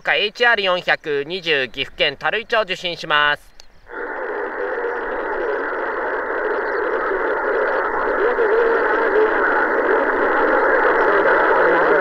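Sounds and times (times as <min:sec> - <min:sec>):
radio static hiss: 0:01.2 - 0:12.0
faint wavering tones: 0:03.8 - 0:12.0.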